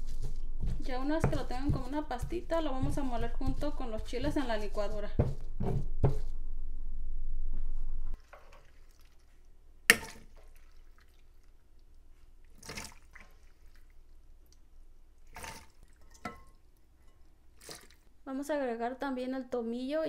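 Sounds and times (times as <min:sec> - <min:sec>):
stone pestle grinding spices: 0:00.0 - 0:05.8
wet drops and splashes: 0:08.2 - 0:16.4, 0:17.5 - 0:18.1
metal ladle clinking on plastic jar: 0:16.0 - 0:17.2.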